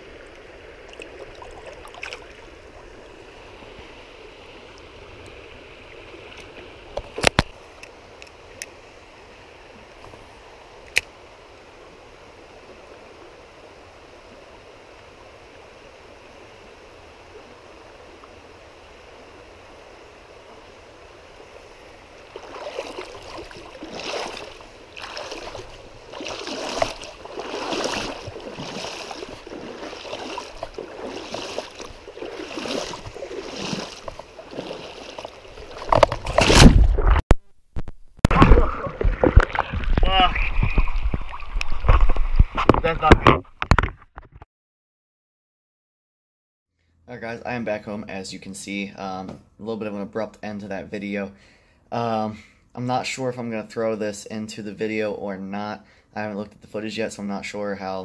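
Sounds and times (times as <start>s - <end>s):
person wading through water: 0.0s - 7.2s, 21.9s - 37.2s, 38.3s - 42.6s
stream water running: 0.0s - 37.2s, 38.2s - 43.8s.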